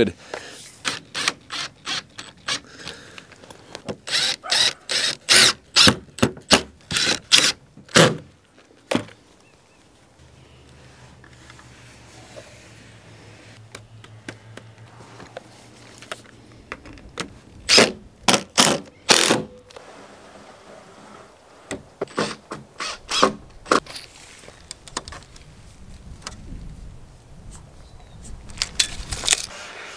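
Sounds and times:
cordless drill driving screws: 0.8s - 2.9s, 4.0s - 7.6s.

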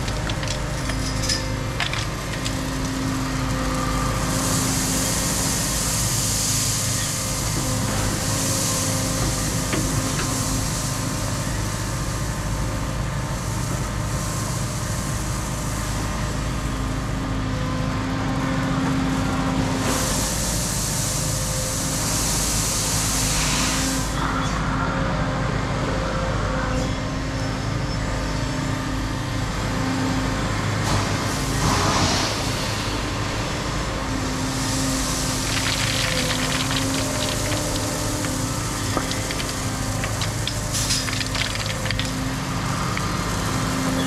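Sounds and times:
excavator diesel engine humming: 0.0s - 22.4s, 24.0s - 44.0s.

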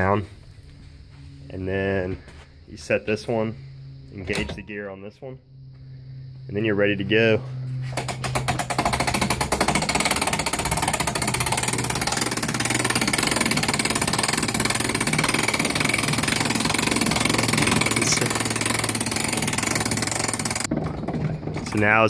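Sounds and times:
hand-cranked winch clicking rattle: 7.9s - 22.0s.

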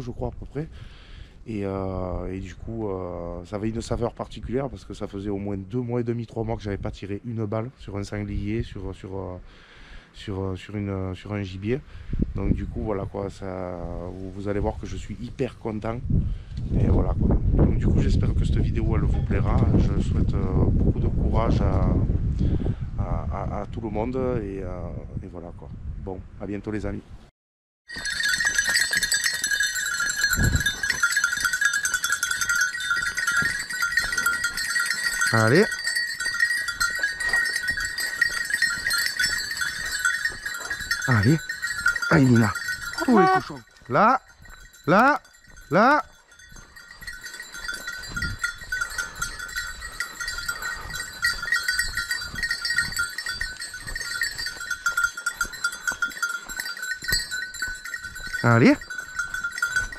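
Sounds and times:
soft footsteps on dirt: 27.9s - 44.7s, 45.4s - 59.9s
dog bells jangling: 27.9s - 59.9s.

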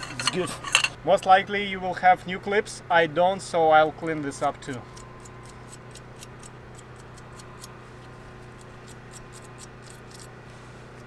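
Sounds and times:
wire brush scrubbing metal: 0.0s - 1.0s, 4.4s - 11.0s.

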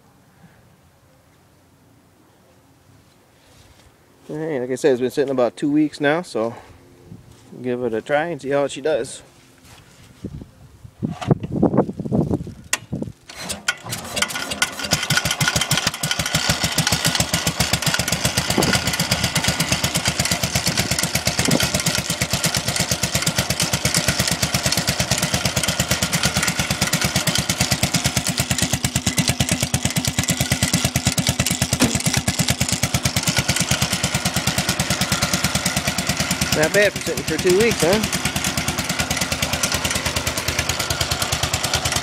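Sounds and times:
garden tractor engine running: 11.1s - 42.0s.

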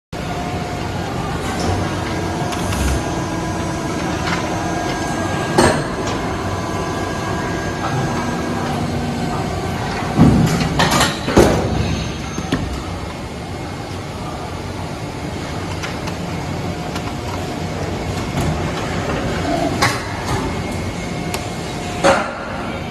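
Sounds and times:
machine humming: 0.2s - 22.9s
machine knocks and clanks: 9.9s - 12.9s.

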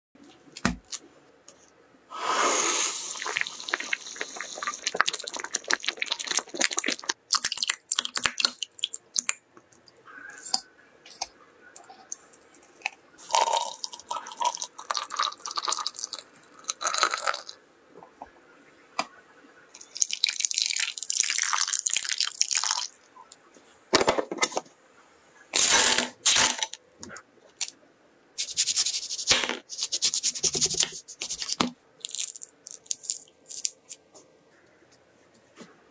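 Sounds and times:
liquid pouring into glass jug: 13.2s - 17.5s.

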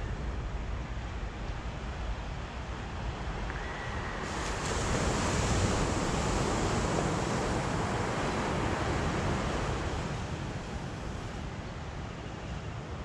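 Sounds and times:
sea waves breaking on shore: 3.8s - 11.8s.

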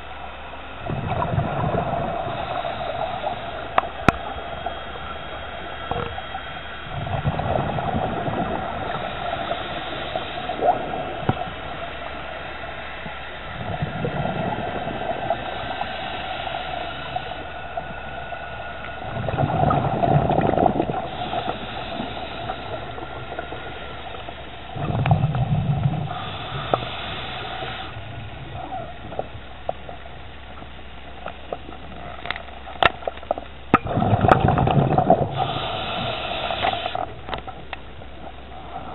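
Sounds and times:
gurgling exhaled bubbles: 0.8s - 12.2s, 13.5s - 30.2s, 33.7s - 38.9s
hissing inhale through regulator: 0.8s - 29.4s, 34.0s - 37.4s.

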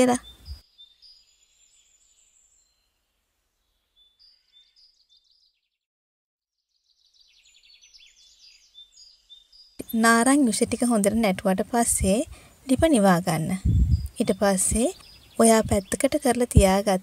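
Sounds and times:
faint bird chirps and trills: 0.0s - 5.7s, 6.6s - 17.0s.

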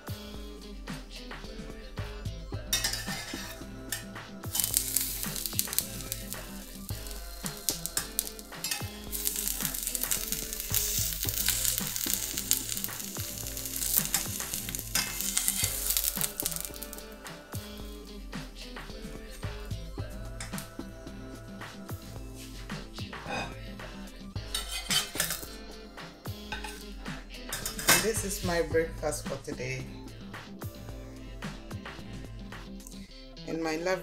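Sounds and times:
metal spatula scraping a pan: 2.7s - 17.1s, 23.2s - 23.6s, 24.5s - 25.5s, 26.5s - 26.9s, 27.5s - 28.2s
bread sizzling in oil: 2.7s - 18.0s, 24.4s - 25.6s.

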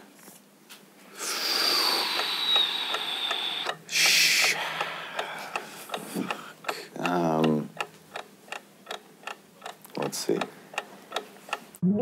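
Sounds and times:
breathy hiss: 1.1s - 7.5s.

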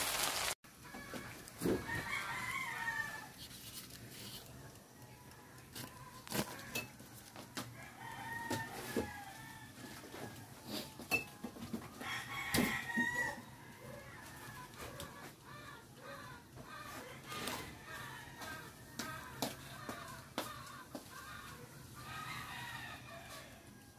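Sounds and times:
rooster crowing: 0.8s - 3.4s, 7.7s - 10.9s, 11.8s - 23.9s.

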